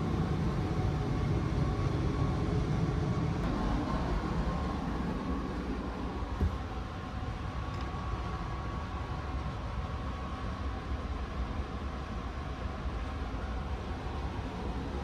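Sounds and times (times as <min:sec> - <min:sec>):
train carriage equipment hum: 0:00.0 - 0:15.0.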